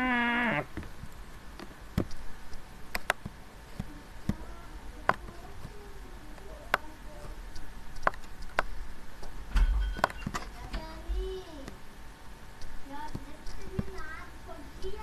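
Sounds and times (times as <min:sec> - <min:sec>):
faint low background noise: 0:00.0 - 0:15.0
sharp clicks and taps: 0:01.6 - 0:06.9, 0:07.5 - 0:09.4, 0:12.6 - 0:14.1.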